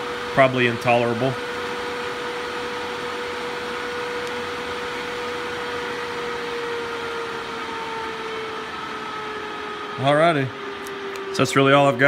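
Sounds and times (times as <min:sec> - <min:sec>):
duct fan air rush with hum: 0:00.0 - 0:12.0.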